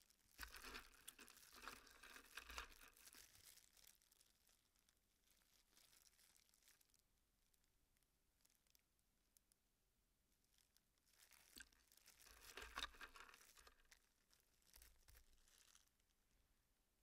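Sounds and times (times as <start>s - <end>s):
plastic glove crinkling: 0.0s - 7.6s, 10.5s - 16.2s
small plastic parts clicking together: 12.3s - 13.9s.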